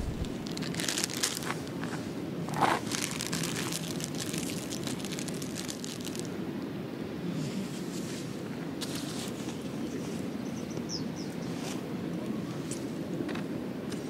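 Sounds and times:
plastic wrapper crinkling: 0:00.0 - 0:01.7, 0:02.7 - 0:06.3.

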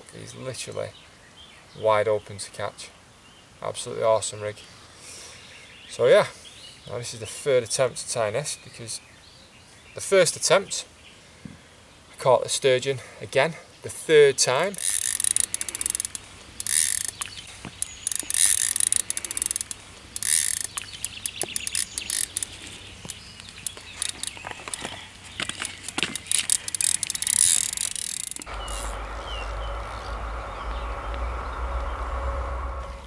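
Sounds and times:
birds chirping: 0:00.2 - 0:33.0
fishing reel clicking and whirring: 0:14.8 - 0:29.0
steady low rumble: 0:28.5 - 0:33.0.

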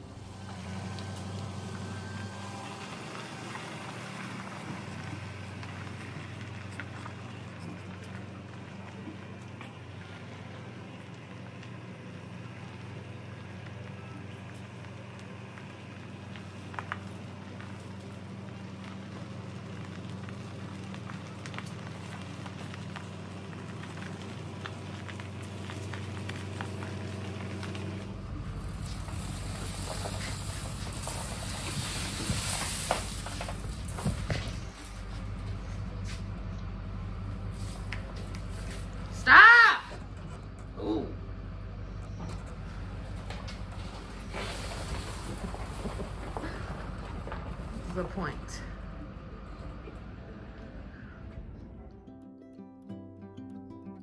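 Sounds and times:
vehicle engine running: 0:00.0 - 0:52.1
footsteps crunching on gravel: 0:16.2 - 0:36.4.

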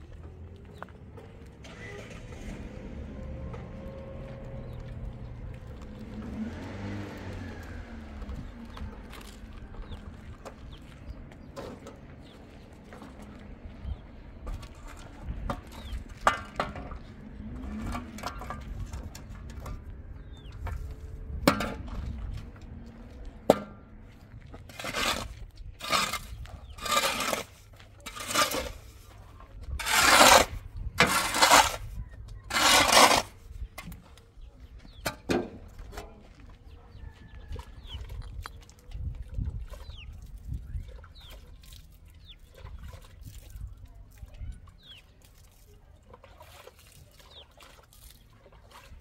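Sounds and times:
shovel scraping into soil: 0:24.6 - 0:34.0.

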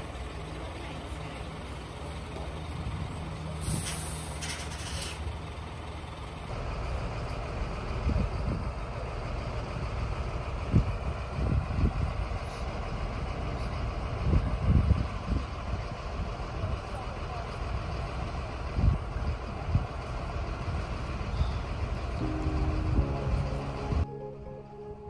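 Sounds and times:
diesel engine running: 0:00.0 - 0:25.0
air brake hiss: 0:03.6 - 0:05.2.

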